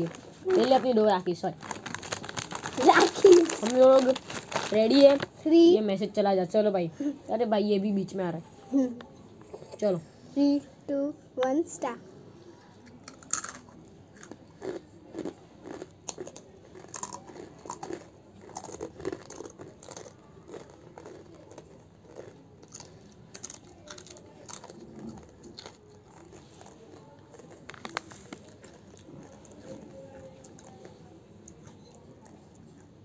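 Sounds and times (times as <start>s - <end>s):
crisps crunching: 0.0s - 5.4s, 13.1s - 30.9s.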